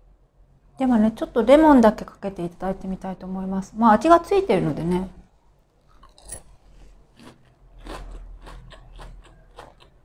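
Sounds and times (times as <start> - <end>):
crunchy breaded cutlet chewing: 5.9 - 10.0.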